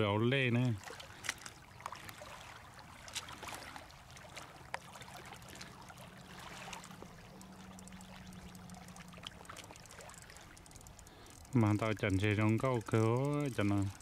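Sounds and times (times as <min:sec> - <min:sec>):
light clicks and splashes: 0:00.0 - 0:14.0
small waves lapping on rocks: 0:00.0 - 0:14.0
faint low hum: 0:04.2 - 0:14.0.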